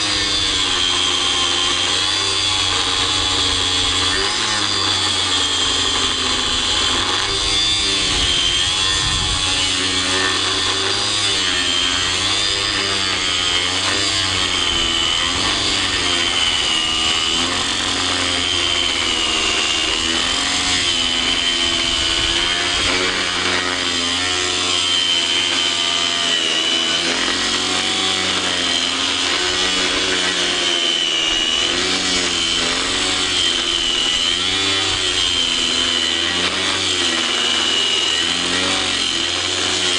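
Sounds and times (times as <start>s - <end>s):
angle grinder cutting metal: 0.0s - 39.9s.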